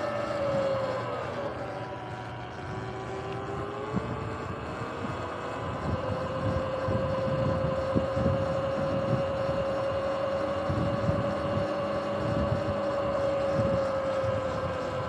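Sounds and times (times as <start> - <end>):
electric motorbike motor whining: 0.0 - 15.0
wind and tyre rumble: 0.0 - 15.0.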